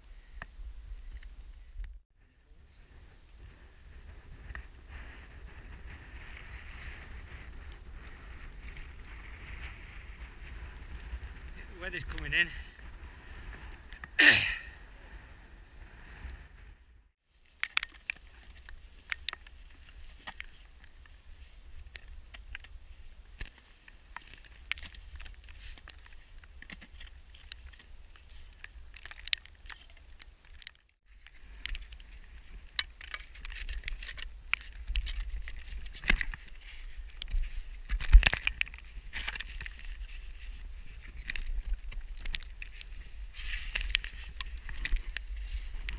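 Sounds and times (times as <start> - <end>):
wind rumble on microphone: 0.0 - 17.1, 31.2 - 45.9.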